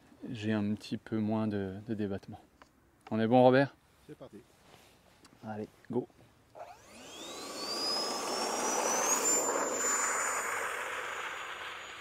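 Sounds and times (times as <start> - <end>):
electric ducted fan whine: 6.6 - 12.0
rush of air: 7.3 - 12.0.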